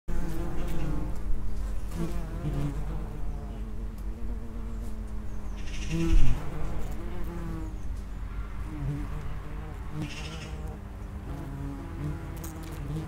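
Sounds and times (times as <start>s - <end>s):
wasps buzzing in flight: 0.1s - 13.0s.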